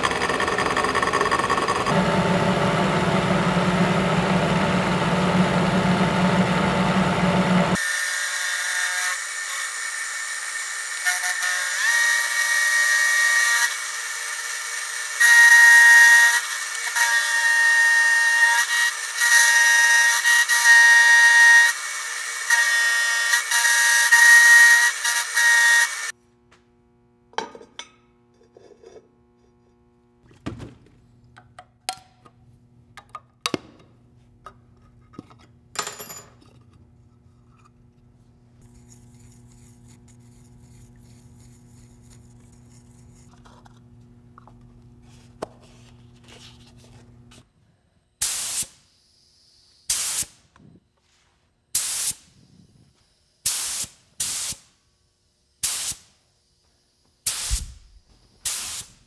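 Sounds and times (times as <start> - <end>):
milling machine cutting steel: 0.0 - 2.4
spray paint hissing: 48.2 - 48.8, 51.8 - 52.3, 53.5 - 54.6, 55.6 - 56.1, 57.3 - 59.0.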